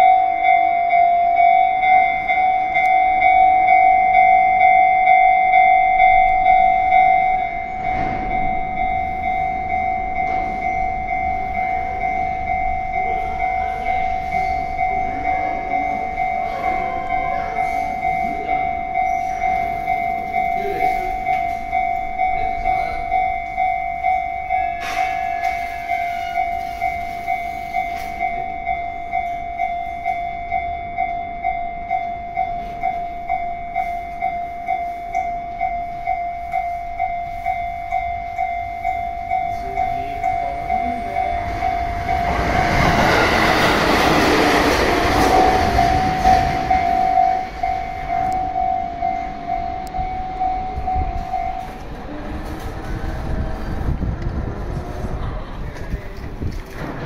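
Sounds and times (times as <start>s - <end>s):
level-crossing warning bell: 0.0s - 57.0s
train passing: 0.0s - 57.0s.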